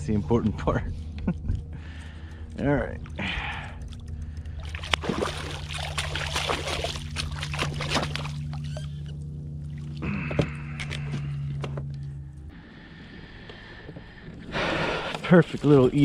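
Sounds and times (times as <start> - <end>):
steady low hum: 0.0 - 16.0
fish thrashing and splashing: 3.0 - 10.1.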